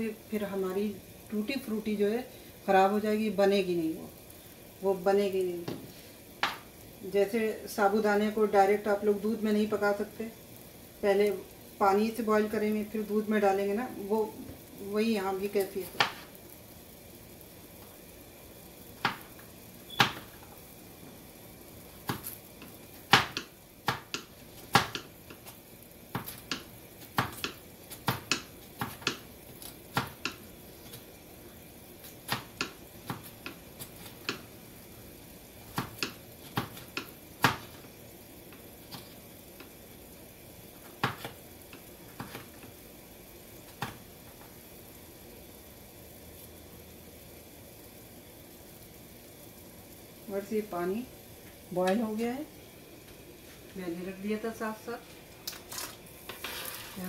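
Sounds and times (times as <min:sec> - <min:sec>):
faint steady hiss: 0:00.0 - 0:57.0
knife chopping on cutting board: 0:23.1 - 0:25.1, 0:26.1 - 0:29.2, 0:29.9 - 0:30.4, 0:32.3 - 0:34.4, 0:35.7 - 0:37.8, 0:41.0 - 0:41.4.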